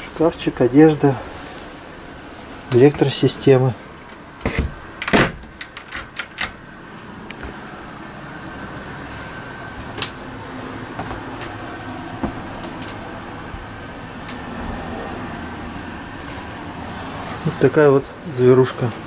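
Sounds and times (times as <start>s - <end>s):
steady hum: 0.0s - 19.0s
cabinet door clicks and knocks: 4.4s - 6.3s.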